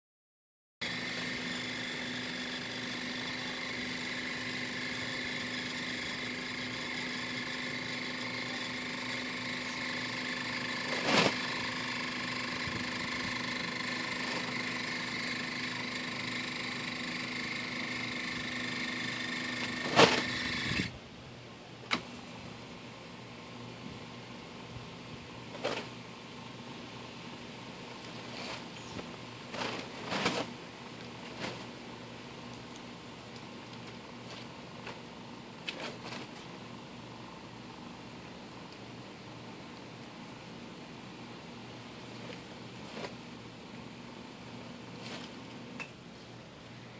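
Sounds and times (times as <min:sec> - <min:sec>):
actuator motor whining: 0:00.8 - 0:21.0.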